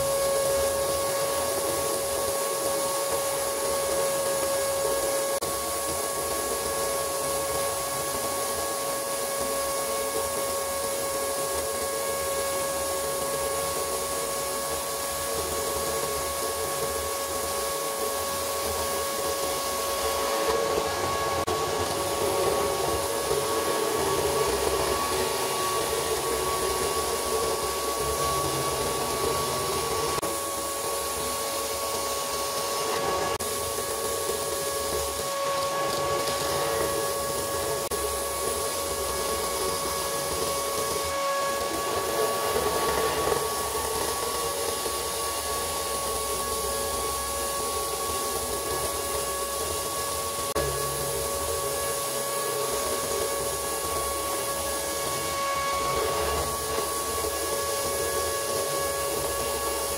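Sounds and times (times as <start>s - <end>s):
drill press spinning sanding drum: 0.0s - 59.9s
vacuum whine and rush: 0.0s - 59.9s.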